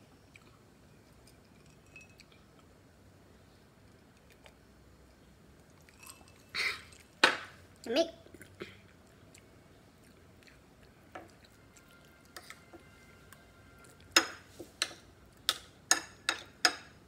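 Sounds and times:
spoon clinking on ceramic bowl: 1.6 - 2.2.

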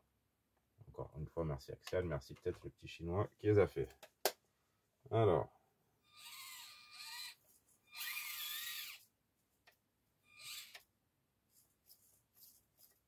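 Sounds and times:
small electric motor whining: 6.1 - 9.1, 10.3 - 10.8.

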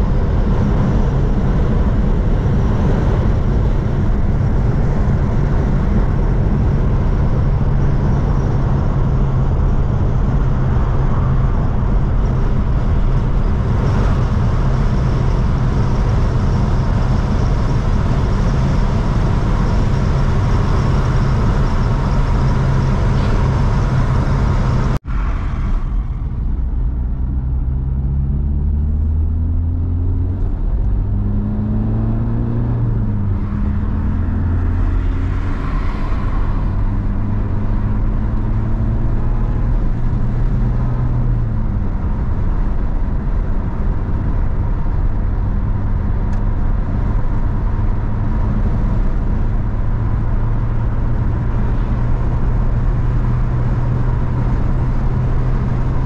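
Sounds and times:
car engine while driving: 0.0 - 56.0
road rumble: 0.0 - 56.0.

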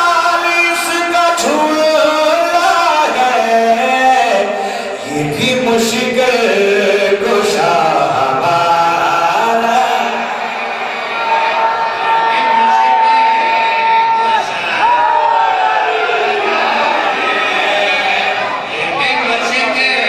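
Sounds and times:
man chanting into a microphone: 0.0 - 10.5.

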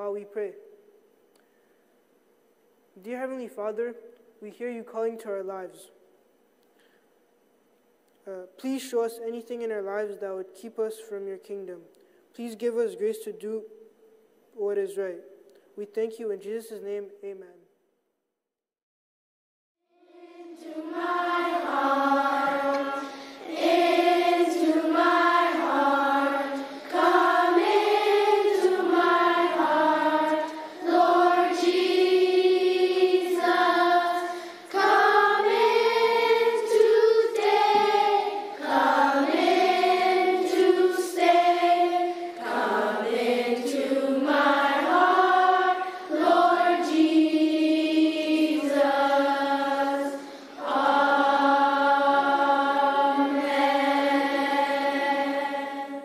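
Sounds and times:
choir singing a hymn: 20.0 - 56.0.

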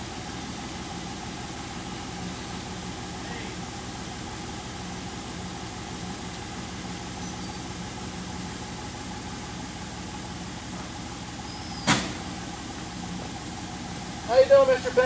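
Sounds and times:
engine idling: 0.0 - 15.0
sharp knock: 11.8 - 12.2.

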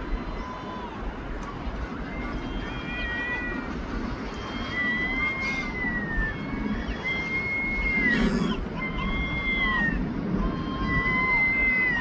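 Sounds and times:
gulls mewing calls: 0.0 - 12.0
low background rumble: 0.0 - 12.0.

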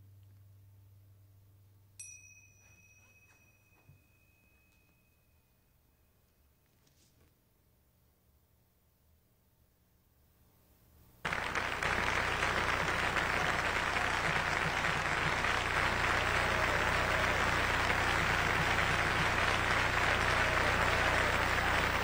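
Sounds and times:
audience applause: 11.3 - 22.0.

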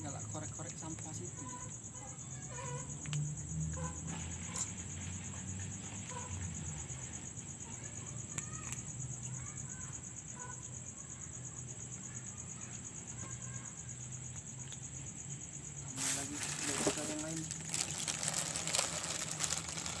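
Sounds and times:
night insects trilling: 0.0 - 20.0
faint clicks: 2.9 - 3.8.

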